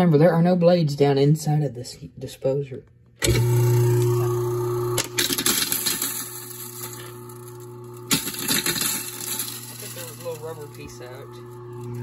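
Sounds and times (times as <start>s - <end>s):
garbage disposal motor hum: 3.2s - 12.0s
ice cubes grinding and rattling: 5.0s - 12.0s.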